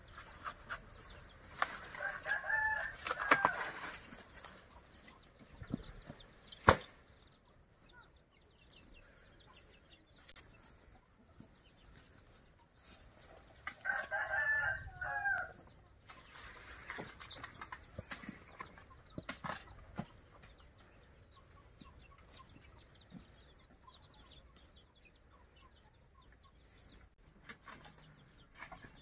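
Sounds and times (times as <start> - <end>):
rooster crowing: 2.0 - 3.7, 13.8 - 15.6.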